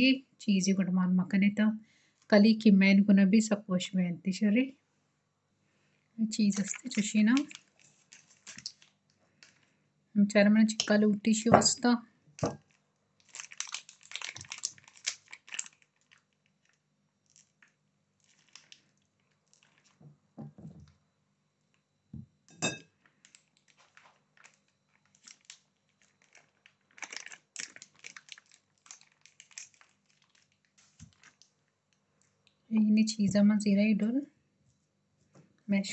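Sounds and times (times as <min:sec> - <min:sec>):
paper wrapper crinkling: 0:06.4 - 0:09.8, 0:12.4 - 0:20.0, 0:23.1 - 0:32.4.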